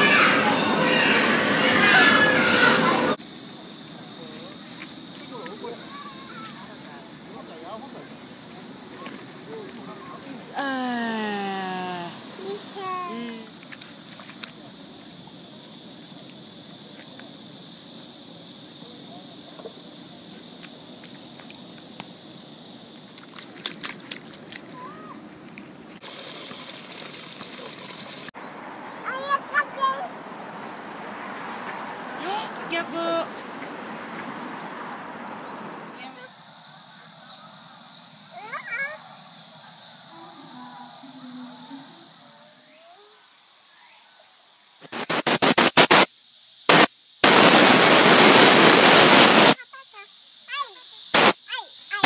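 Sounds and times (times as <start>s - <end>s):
steady hiss of air: 0.0s - 23.2s, 39.2s - 52.0s
splashes in muddy puddle: 23.1s - 25.0s, 26.0s - 28.3s
water running from fountain spout: 26.0s - 28.4s
air blow gun bursts: 44.8s - 46.1s, 46.7s - 49.6s, 51.1s - 52.0s.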